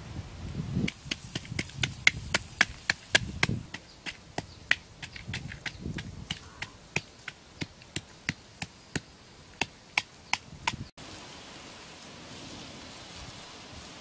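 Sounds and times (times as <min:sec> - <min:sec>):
sharp chopping knocks: 0:00.9 - 0:10.8.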